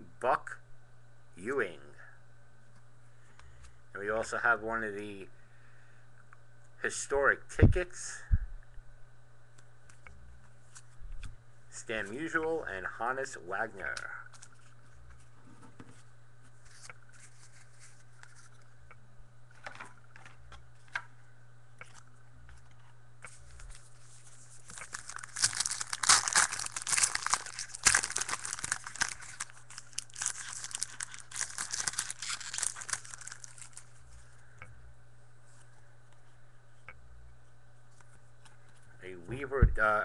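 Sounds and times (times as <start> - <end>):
low steady hum: 0.0 - 40.0
card pack wrapper tearing and crinkling: 13.9 - 14.7, 23.6 - 34.0.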